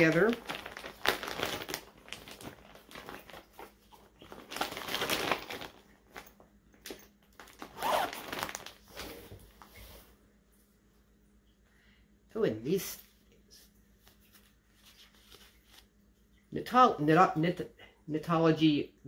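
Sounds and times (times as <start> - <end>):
packaging crinkling and rustling: 0.0 - 9.7, 14.0 - 15.9.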